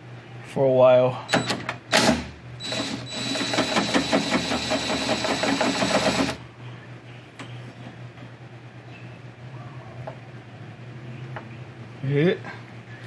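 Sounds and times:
cordless drill running: 2.6 - 6.4.

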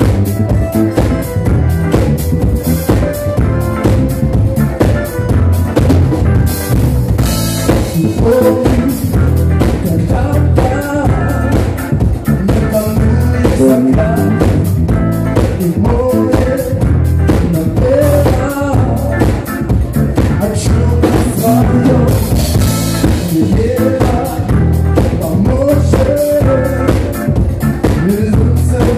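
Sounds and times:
drum kit playing: 0.0 - 28.9
electric bass guitar: 0.0 - 28.9
higher melodic line: 0.0 - 28.9.

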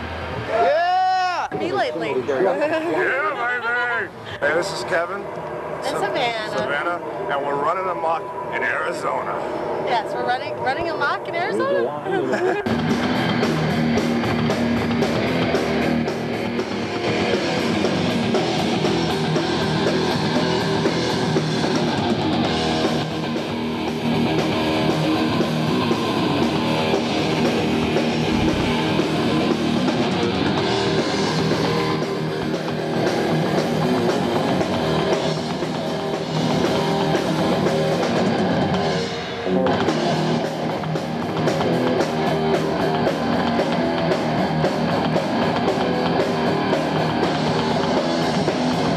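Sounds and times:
electric guitars: 4.1 - 48.9
drum kit: 12.7 - 48.9.

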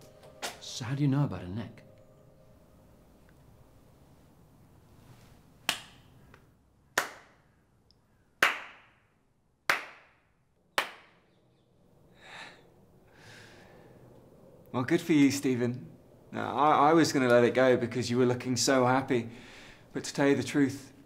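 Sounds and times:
slow hand clapping: 5.7 - 6.4, 7.0 - 7.4, 8.4 - 9.0, 9.7 - 10.2, 10.8 - 11.2.

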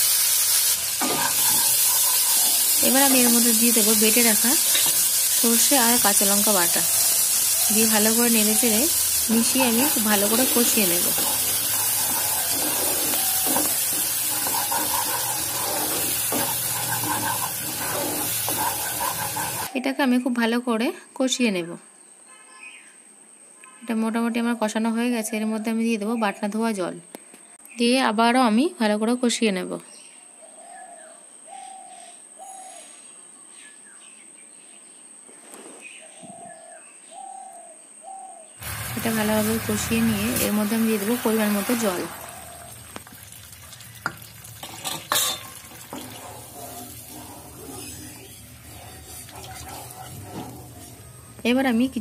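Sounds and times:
paste sizzling in hot oil: 0.0 - 19.7, 38.6 - 52.0
spatula stirring: 0.5 - 19.7, 44.0 - 52.0.

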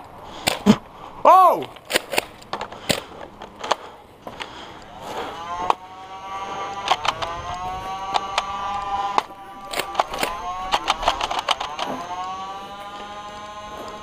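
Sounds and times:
motor hum: 2.0 - 14.0
sharp clicks: 6.6 - 14.0.

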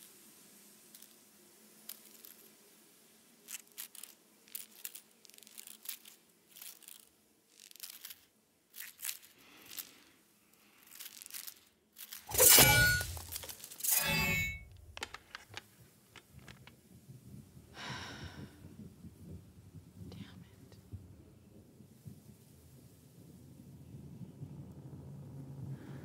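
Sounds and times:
crackling and rustling: 0.0 - 17.7.

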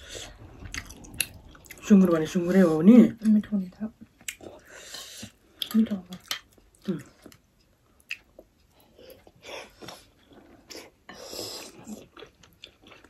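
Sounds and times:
biting and chewing dumplings: 11.7 - 13.0.

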